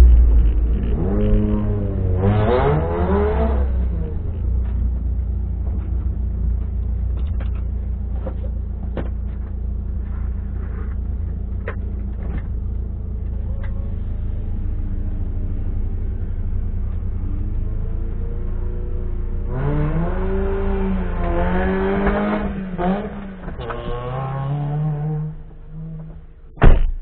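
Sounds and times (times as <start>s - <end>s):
car engine idling: 0.0s - 19.5s
clicks and knocks inside car: 4.5s - 9.6s.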